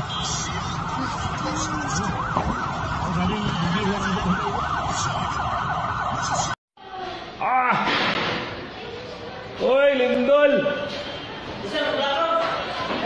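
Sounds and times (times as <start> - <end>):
siren yelping: 0.0 - 6.6
steady background noise: 0.0 - 13.0.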